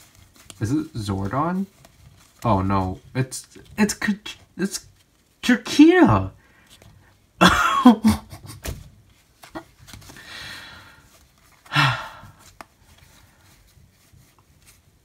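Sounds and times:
breathy exhalation: 10.1s - 12.5s.

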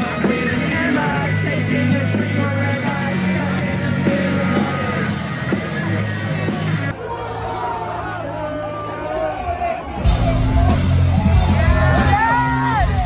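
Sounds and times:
live rock music: 0.0s - 6.9s, 9.9s - 13.0s
people yelling and singing along: 0.0s - 13.0s.

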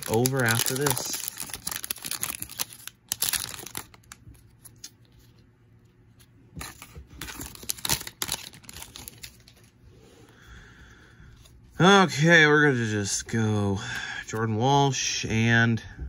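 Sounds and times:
foil wrapper tearing and crinkling: 0.0s - 5.0s, 7.2s - 9.6s
cards being handled: 0.0s - 9.8s.

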